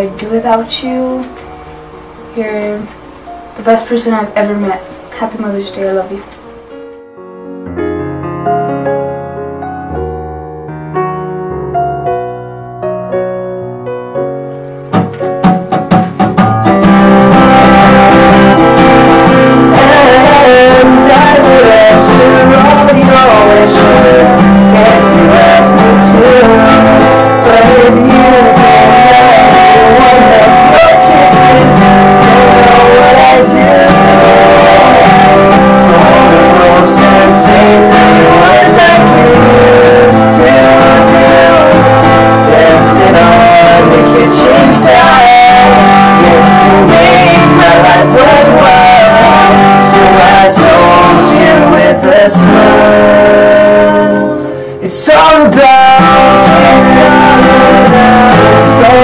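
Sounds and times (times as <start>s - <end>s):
acoustic guitar strumming: 0.0s - 59.0s
man and woman singing: 17.4s - 59.0s.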